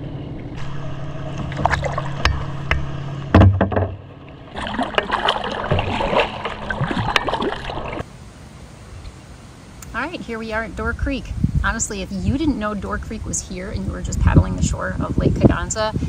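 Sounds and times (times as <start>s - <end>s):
paddle splashing water: 1.2s - 8.0s
thump: 1.6s - 4.0s
water dripping: 4.3s - 8.0s.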